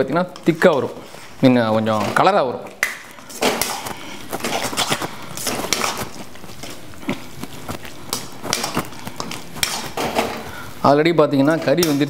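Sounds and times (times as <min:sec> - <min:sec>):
metal spatula scraping steel pan: 0:03.3 - 0:06.8, 0:08.1 - 0:10.6.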